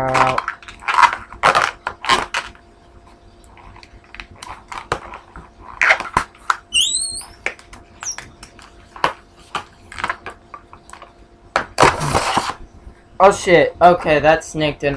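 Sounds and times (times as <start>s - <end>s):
rubber balloon rustling and clicking: 3.5s - 10.3s
balloon squeak: 6.7s - 8.3s, 11.8s - 12.6s.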